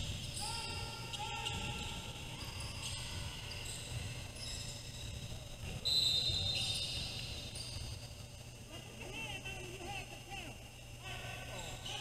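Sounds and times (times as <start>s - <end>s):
shoe squeaks: 0.1s - 8.2s
sharp high squeal: 5.8s - 8.0s.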